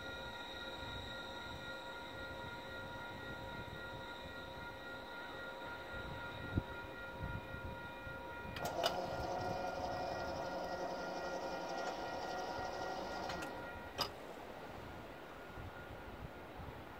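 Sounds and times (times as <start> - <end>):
electric whine of light rail: 0.0 - 16.9
clunk: 13.1 - 14.2.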